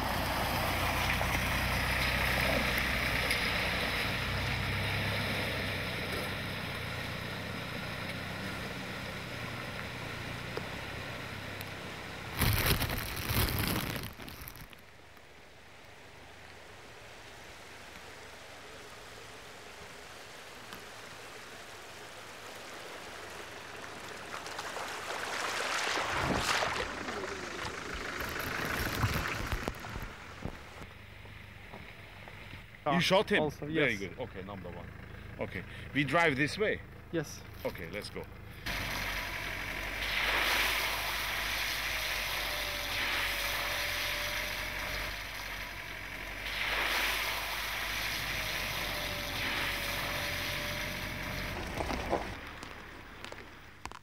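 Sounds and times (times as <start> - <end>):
van engine running: 0.0 - 14.6, 22.8 - 54.0
water splashing and rushing: 0.0 - 15.1, 16.1 - 30.9, 38.6 - 53.9.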